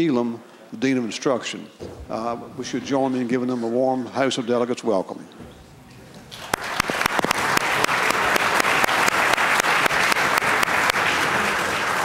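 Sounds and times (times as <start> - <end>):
crowd applauding: 6.3 - 12.0.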